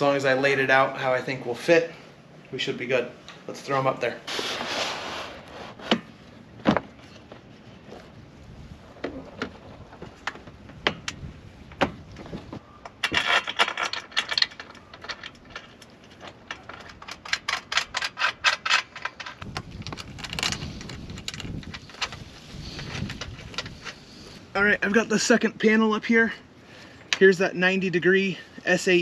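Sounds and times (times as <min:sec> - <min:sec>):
rubbing: 0:04.3 - 0:06.0
metal frame clicks and knocks: 0:12.9 - 0:19.5.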